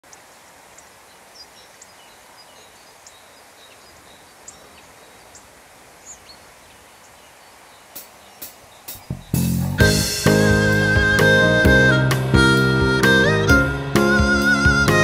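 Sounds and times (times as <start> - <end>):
steady rushing hiss: 0.0 - 15.0
high bird chirps: 0.8 - 9.7.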